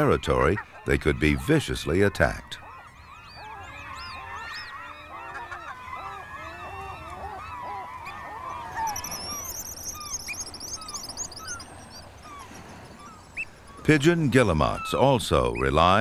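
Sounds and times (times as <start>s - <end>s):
gulls calling: 0.0s - 16.0s
high whistled bird trills: 8.5s - 14.0s.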